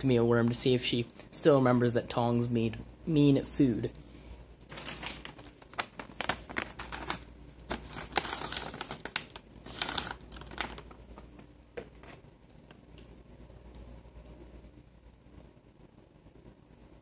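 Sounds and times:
plastic bag crinkling: 4.6s - 12.9s.

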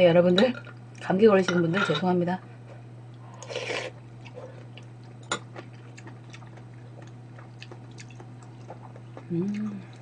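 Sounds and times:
steady low hum: 0.0s - 10.0s
slurping soup: 3.4s - 4.0s
chewing with wet mouth clicks: 4.2s - 10.0s.

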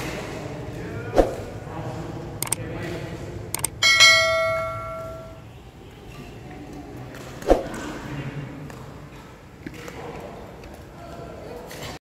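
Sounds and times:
quick click: 3.6s - 3.8s
bright bell ding: 3.6s - 5.4s.

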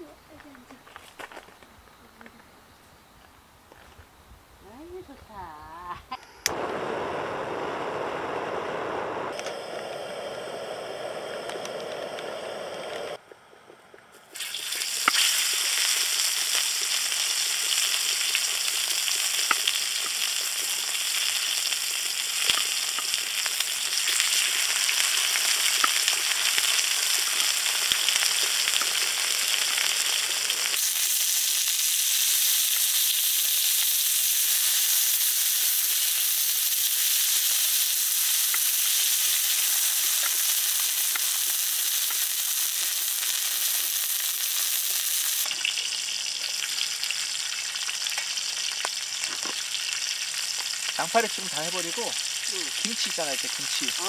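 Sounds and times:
gas burner flames rushing: 6.4s - 13.2s
steak sizzling in oil: 14.3s - 54.0s.

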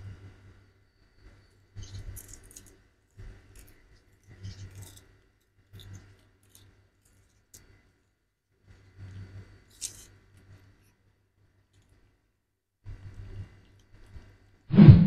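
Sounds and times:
low steady hum: 0.0s - 15.0s
cats chewing: 1.8s - 7.8s.

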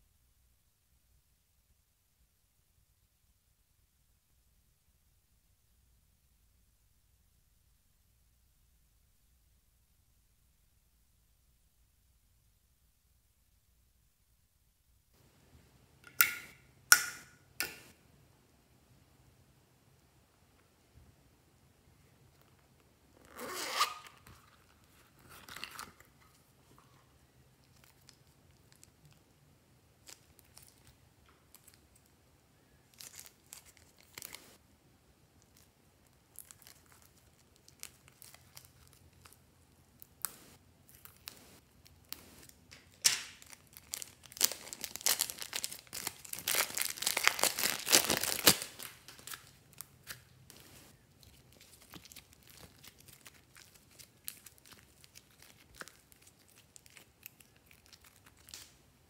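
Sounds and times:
slime crackling and tearing: 36.3s - 39.4s, 40.0s - 50.3s, 51.2s - 58.8s.

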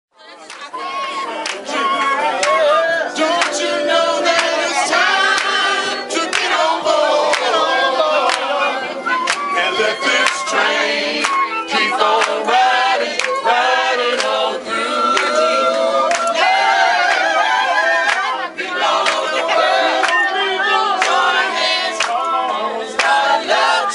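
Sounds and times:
group of people singing: 0.2s - 23.9s
sharp hand claps: 3.4s - 3.7s, 6.3s - 6.6s, 9.2s - 9.5s, 11.2s - 11.5s, 12.2s - 12.4s, 13.2s - 13.4s, 16.1s - 16.4s, 22.0s - 22.2s.

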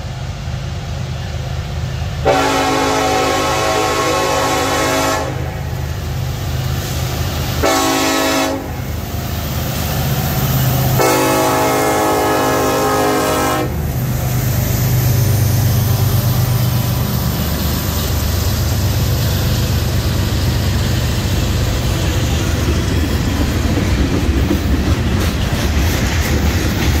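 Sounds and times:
freight train cars rumbling past: 0.0s - 27.0s
train air horn blast: 2.2s - 5.7s, 7.6s - 8.9s, 10.9s - 13.8s
wheels clicking over rails: 15.5s - 27.0s.

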